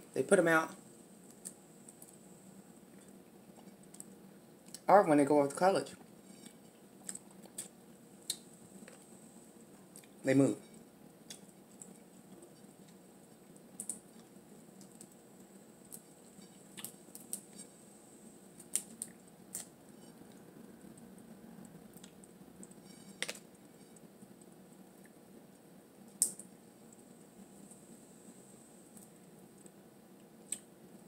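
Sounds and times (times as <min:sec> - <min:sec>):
crab shell cracking: 0:18.6 - 0:19.8, 0:21.9 - 0:24.5, 0:26.1 - 0:26.5.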